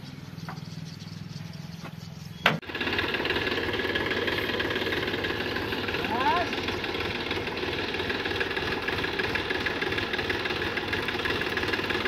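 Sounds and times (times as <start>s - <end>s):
tractor diesel engine idling: 2.6s - 12.0s.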